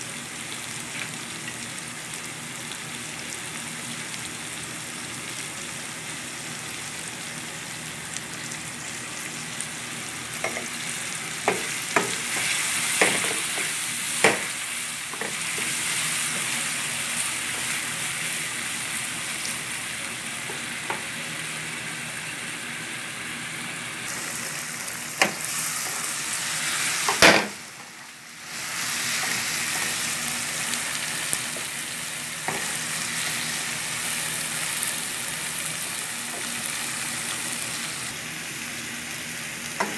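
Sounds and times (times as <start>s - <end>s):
shrimp and onions sizzling in a pan: 0.0s - 39.9s.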